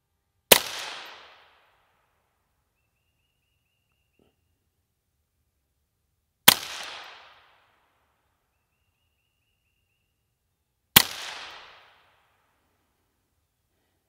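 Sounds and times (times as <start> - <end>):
rifle shots with echo: 0.5 - 1.7, 6.5 - 7.8, 11.0 - 12.3.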